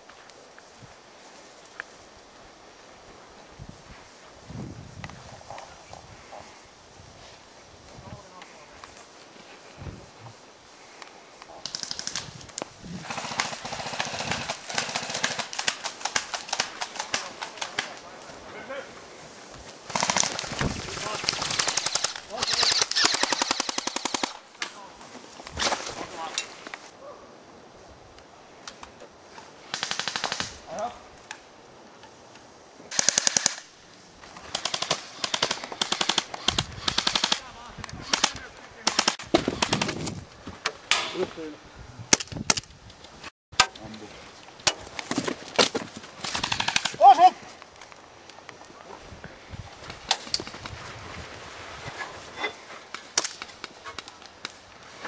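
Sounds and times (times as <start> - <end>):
running footsteps in undergrowth: 0.0 - 27.0, 43.9 - 55.0
twigs crackling: 7.2 - 27.0, 42.3 - 49.0, 52.2 - 55.0
airsoft gun full-auto bursts: 13.0 - 17.1, 19.9 - 24.4, 29.7 - 30.6, 32.9 - 33.6, 34.5 - 37.4, 38.0 - 39.9, 46.4 - 47.0.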